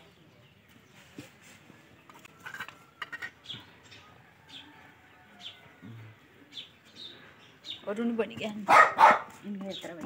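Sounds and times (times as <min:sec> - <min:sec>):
bird chirping: 0:02.9 - 0:10.0.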